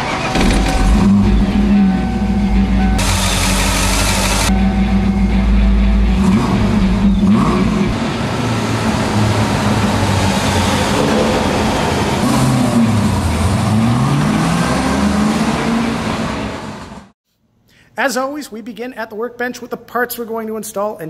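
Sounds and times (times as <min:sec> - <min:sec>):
car engine revving: 0:00.0 - 0:17.1.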